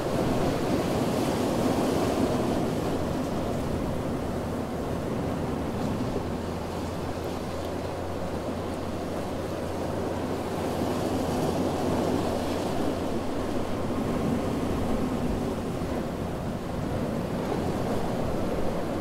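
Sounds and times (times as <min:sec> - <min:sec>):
ocean waves washing onto beach: 0:00.0 - 0:19.0.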